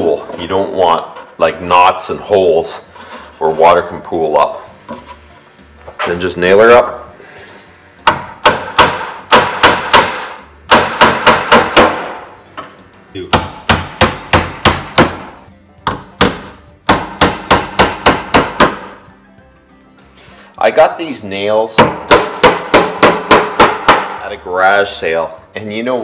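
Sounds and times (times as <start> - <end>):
hammer driving nails into wood: 8.0 - 12.3, 13.3 - 19.0, 21.8 - 24.2.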